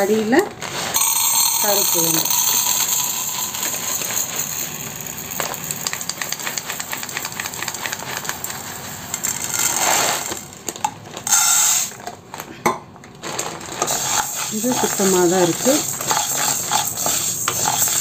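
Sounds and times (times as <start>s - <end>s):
seeds pouring into metal cup: 0.0s - 12.0s, 13.2s - 18.0s.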